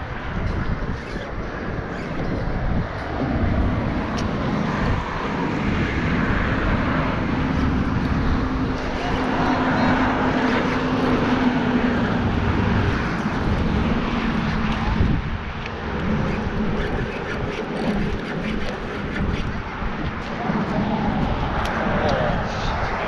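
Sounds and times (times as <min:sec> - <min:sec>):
steady engine drone: 0:00.0 - 0:23.0
wind rumble on microphone: 0:00.0 - 0:23.0.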